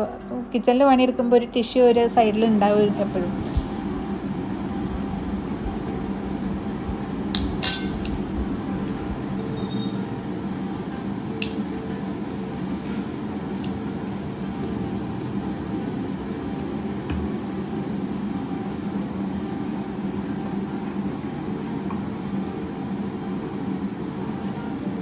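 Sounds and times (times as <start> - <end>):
low motor hum: 0.0 - 25.0.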